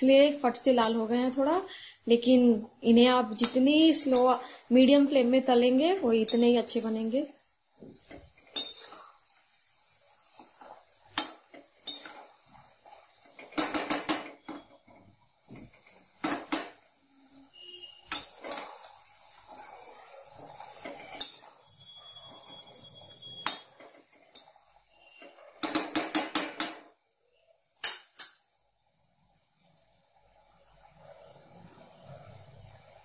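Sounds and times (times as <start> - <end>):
oil sizzling: 0.0 - 33.0.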